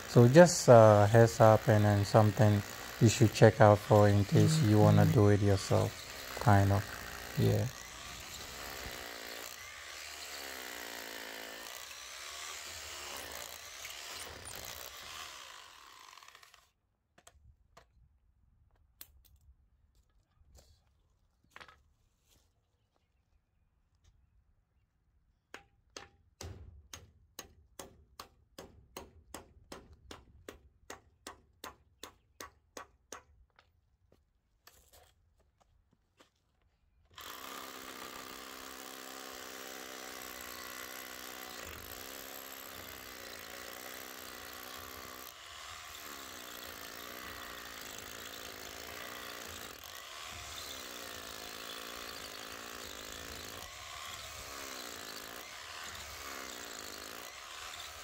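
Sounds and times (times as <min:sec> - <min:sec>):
rotary hammer drill boring concrete: 0:00.0 - 0:16.7, 0:37.1 - 0:58.0
hammer tapping wooden post: 0:25.5 - 0:33.6.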